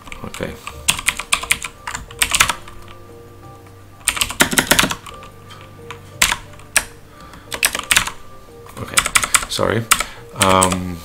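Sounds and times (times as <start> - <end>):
computer keyboard typing: 0.0 - 3.0, 4.0 - 10.9.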